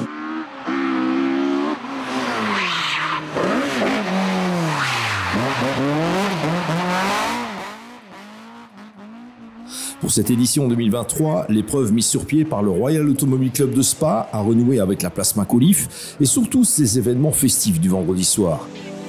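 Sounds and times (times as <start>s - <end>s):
rally car engine revving: 0.0s - 10.8s.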